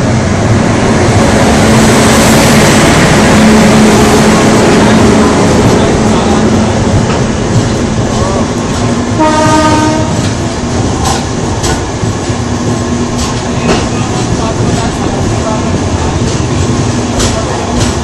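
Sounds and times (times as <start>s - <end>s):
trains rumbling and clattering: 0.0s - 18.0s
train horn blast: 9.2s - 10.3s.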